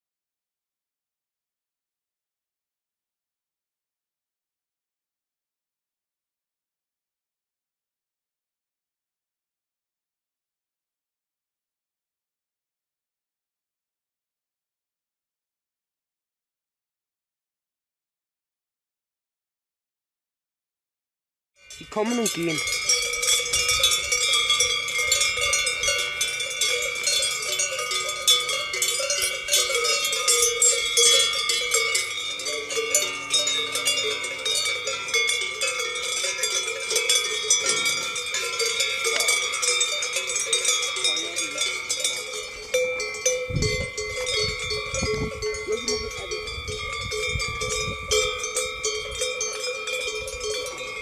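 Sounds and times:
cowbells clanking: 21.6s - 51.0s.

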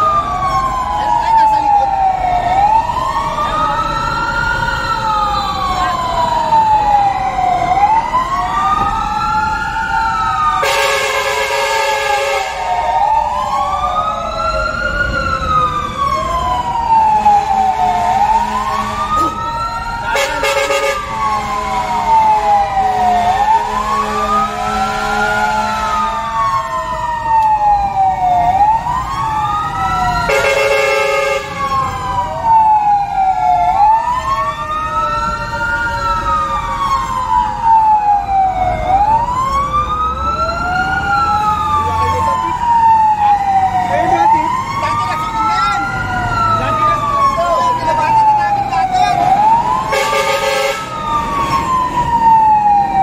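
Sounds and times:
fire truck sirens wailing: 0.0s - 53.0s
horn blast: 10.6s - 12.7s, 49.9s - 50.9s.

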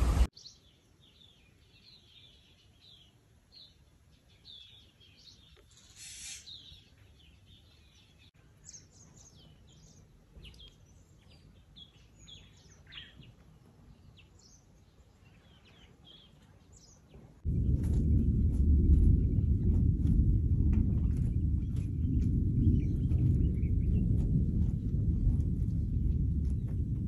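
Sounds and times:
small birds chirping: 0.2s - 19.8s, 20.9s - 27.0s
brief hiss: 5.7s - 6.7s
loud low rumble: 17.4s - 27.0s.

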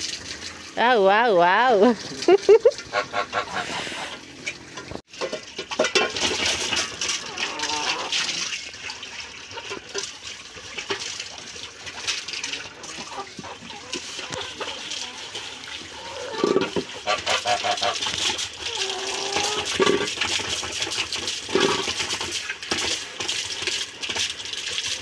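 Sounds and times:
metal bowls clinking and scraping: 2.6s - 8.6s, 12.0s - 24.3s
tap water splashing into trough: 4.4s - 25.0s.

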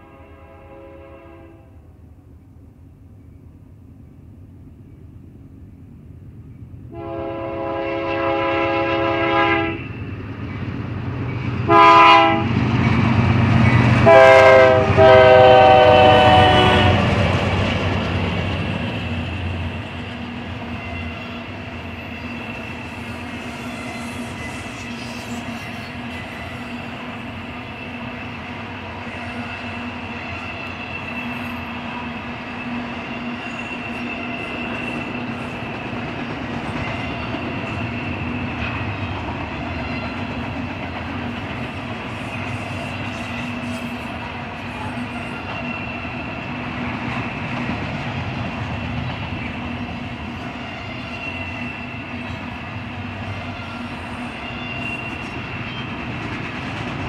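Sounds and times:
locomotive air horn blasts: 0.0s - 1.8s, 6.9s - 9.8s, 11.7s - 12.5s, 14.0s - 17.2s
rolling rumble of freight cars: 0.0s - 57.0s.

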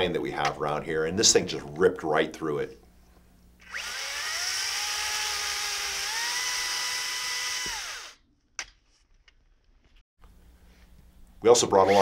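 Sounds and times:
electric chainsaw cutting wood: 3.6s - 8.2s, 11.8s - 12.0s.

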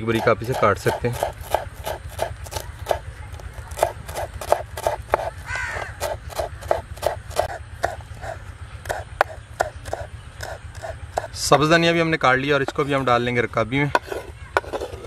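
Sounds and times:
knife chopping on wooden board: 0.0s - 11.4s.

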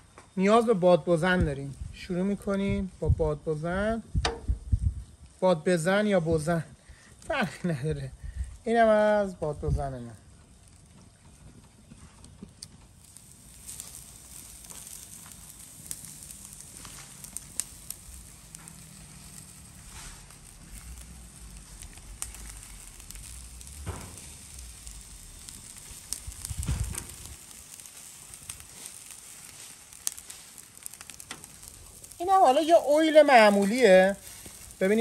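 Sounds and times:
charcoal fire crackling and sizzling: 0.0s - 35.0s
gusting whooshes of air: 17.6s - 27.8s.

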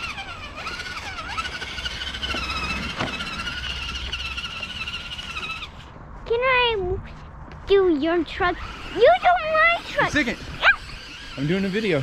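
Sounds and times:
electric motor whine: 0.0s - 5.9s, 8.6s - 12.0s.

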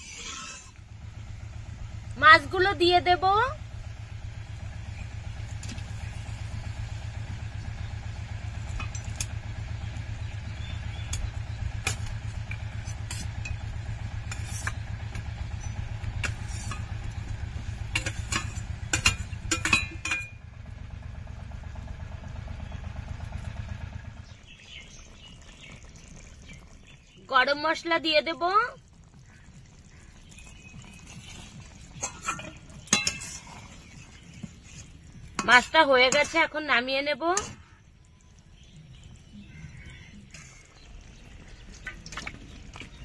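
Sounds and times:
metal spoon scraping a pan: 0.0s - 0.7s, 12.8s - 13.6s, 14.2s - 14.8s, 16.2s - 17.1s, 17.9s - 20.3s, 31.1s - 34.0s, 34.6s - 36.6s
low mechanical rumble: 0.0s - 43.0s.

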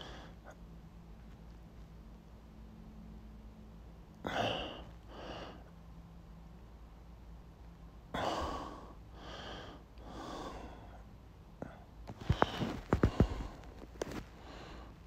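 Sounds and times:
person breathing heavily: 4.2s - 5.7s, 8.1s - 15.0s.

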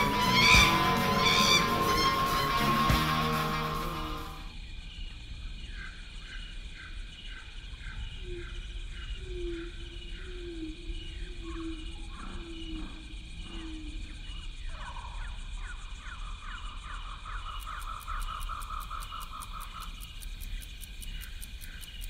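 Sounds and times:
falling animal calls: 0.0s - 4.4s
low animal calls: 0.0s - 4.4s
fast trill: 0.0s - 4.5s
insect chirping: 0.0s - 22.0s
insect drone: 0.0s - 22.0s
rapid fine ticking: 17.6s - 22.0s.

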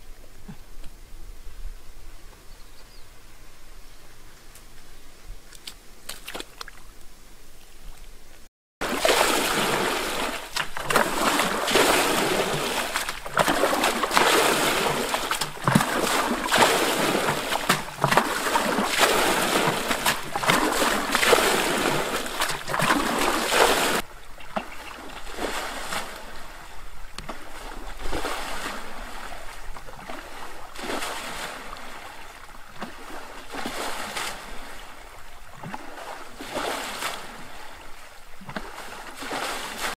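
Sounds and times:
water splashing and sloshing: 5.5s - 39.9s.

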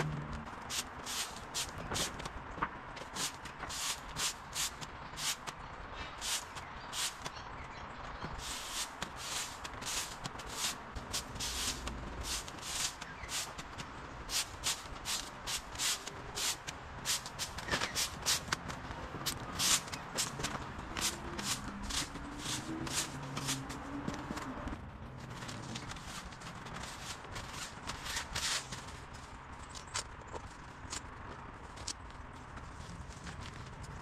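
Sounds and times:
broom sweeping on concrete: 0.7s - 2.3s, 3.0s - 5.5s, 6.1s - 7.3s, 8.4s - 18.6s, 19.2s - 24.4s, 25.9s - 29.0s.

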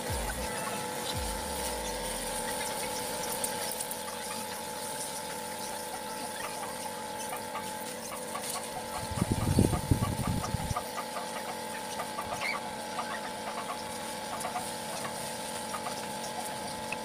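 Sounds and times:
pump washer whining and ticking: 0.0s - 17.0s.

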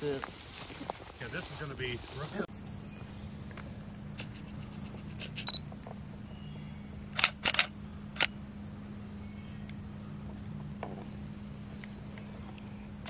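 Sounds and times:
steady low hum: 0.0s - 13.0s
camera shutter clicking: 7.2s - 8.3s.

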